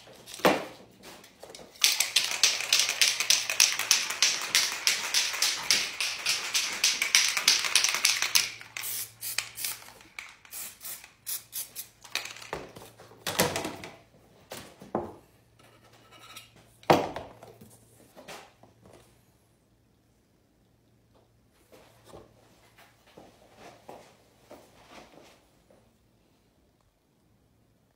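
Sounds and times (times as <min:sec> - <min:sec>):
spray can ball rattling: 0:01.7 - 0:12.6.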